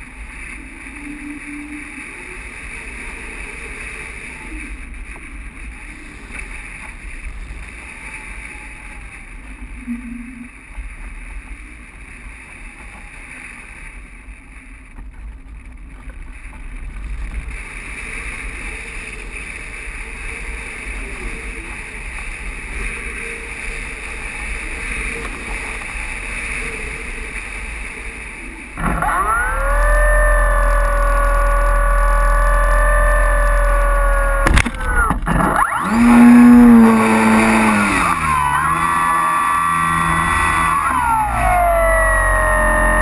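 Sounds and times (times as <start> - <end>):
airflow rushing over glider: 0.0 - 9.8
electric motor whine: 18.4 - 43.0.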